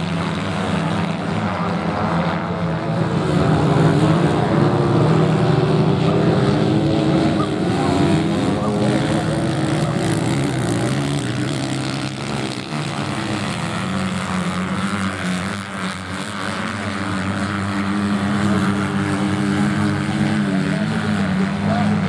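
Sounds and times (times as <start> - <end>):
motocross bike engines buzzing: 0.0 - 22.0.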